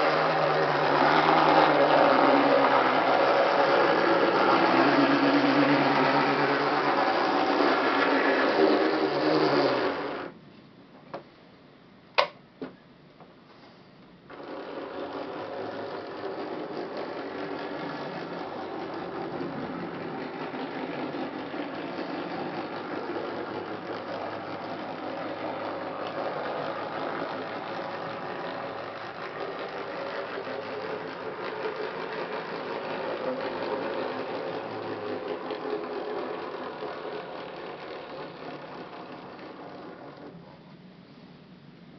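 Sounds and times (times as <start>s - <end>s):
model locomotive gears whirring: 0.0s - 10.3s, 14.3s - 40.7s.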